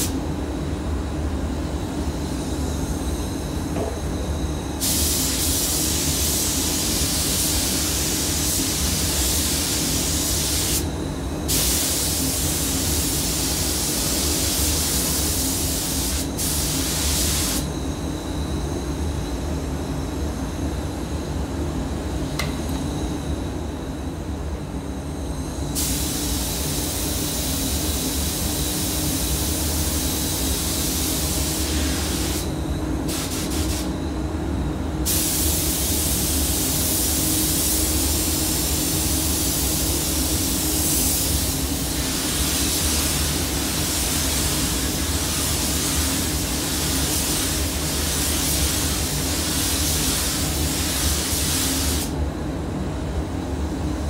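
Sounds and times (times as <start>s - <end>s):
ventilation low hum: 0.0s - 54.0s
spray gun hissing: 4.8s - 10.9s, 11.5s - 17.7s, 25.8s - 32.5s, 33.1s - 34.0s, 35.0s - 52.1s.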